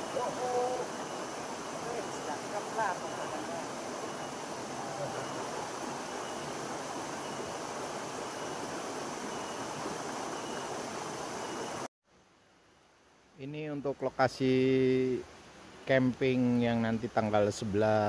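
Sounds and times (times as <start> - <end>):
stream rushing over boulders: 0.0 - 11.9
faint high peep: 1.8 - 11.9.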